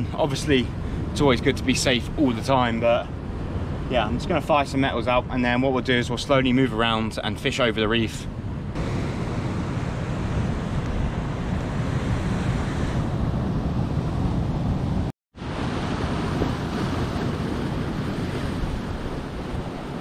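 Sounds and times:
wind buffeting microphone: 0.0s - 20.0s
sea swell breaking over rocks: 15.4s - 20.0s.

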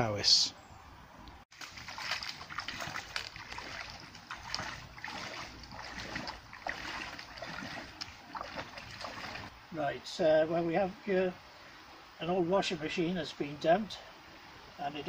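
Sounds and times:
people wading through water: 1.5s - 9.6s.

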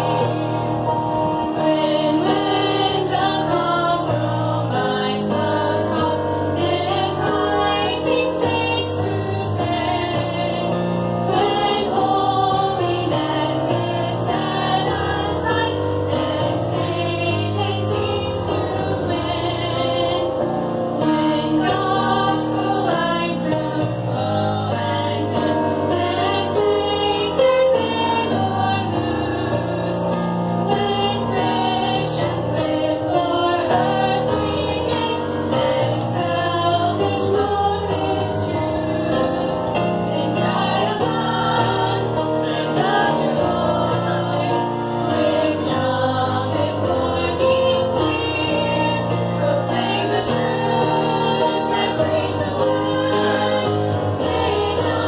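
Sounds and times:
girls singing through microphones: 0.0s - 55.0s
musical accompaniment: 0.0s - 55.0s.

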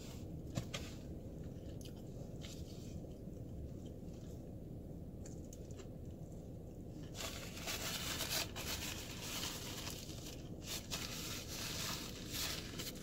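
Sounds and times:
paper napkin rustling: 7.1s - 13.0s.

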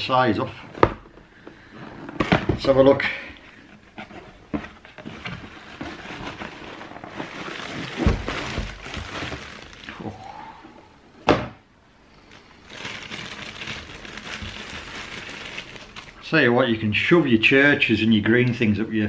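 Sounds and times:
cardboard box rustling and knocks: 4.1s - 9.5s.

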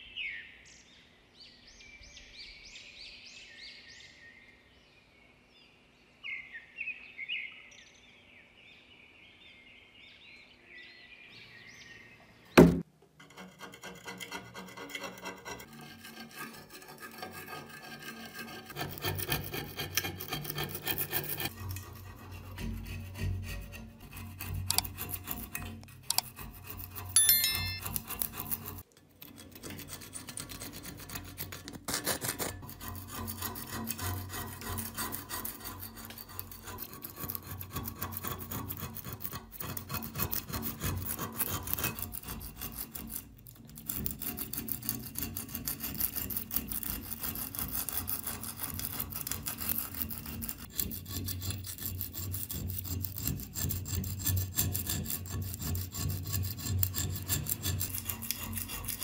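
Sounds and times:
metal blade scraping rust: 13.1s - 59.0s.

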